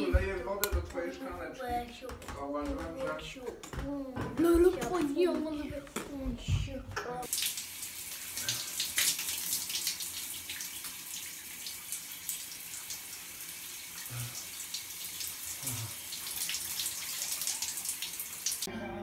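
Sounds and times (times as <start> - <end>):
shower spray splashing: 7.3 - 18.7.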